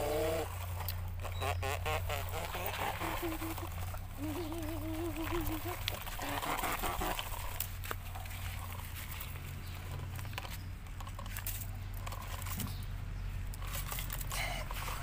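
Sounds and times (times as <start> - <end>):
steady low hum: 0.0 - 11.1
soil pattering: 0.0 - 15.0
plastic toy truck clicking and scraping: 9.8 - 15.0.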